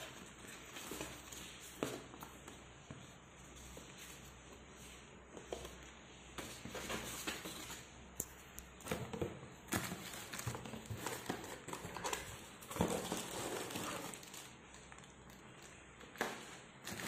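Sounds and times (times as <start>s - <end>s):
cardboard rustling: 0.0s - 5.8s, 8.8s - 17.0s
plastic bags crinkling: 9.7s - 17.0s.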